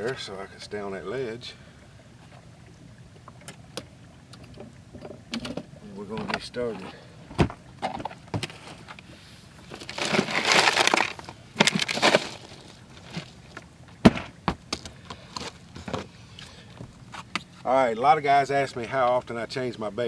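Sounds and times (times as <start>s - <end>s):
ice rattling and crunching: 9.6s - 13.5s.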